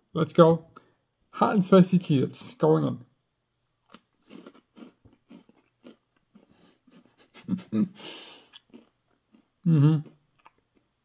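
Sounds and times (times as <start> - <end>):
crackers being chewed: 3.6 - 7.1, 8.4 - 10.9
short vocal sound: 9.6 - 10.2.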